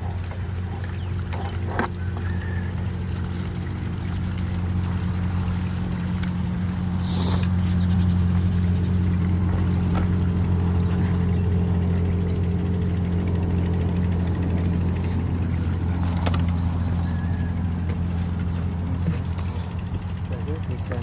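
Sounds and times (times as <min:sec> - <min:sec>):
diesel engine humming: 0:00.0 - 0:21.0
liquid pouring through funnel: 0:00.1 - 0:13.6.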